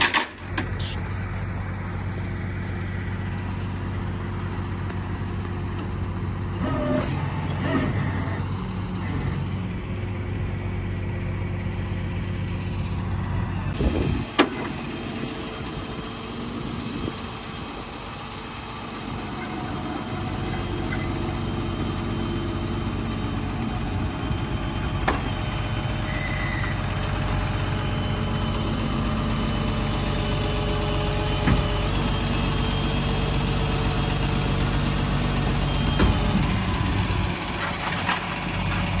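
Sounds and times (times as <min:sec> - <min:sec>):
tow truck engine running: 0:00.0 - 0:39.0.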